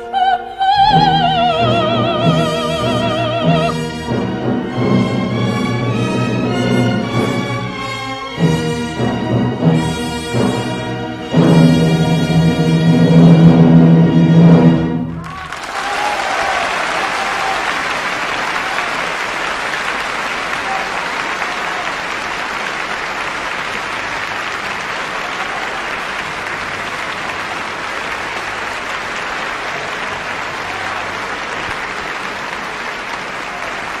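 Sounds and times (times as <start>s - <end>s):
audience applauding: 15.2s - 34.0s.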